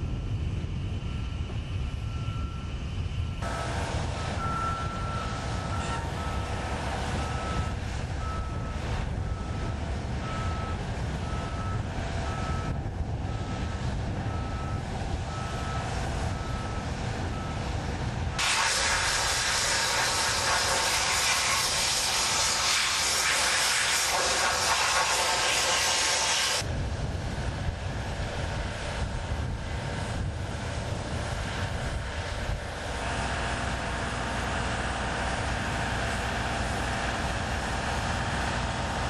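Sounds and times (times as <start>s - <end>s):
low engine rumble: 0.0s - 39.0s
backup alarm beeping: 3.4s - 12.8s
loud steady hiss: 18.4s - 26.7s.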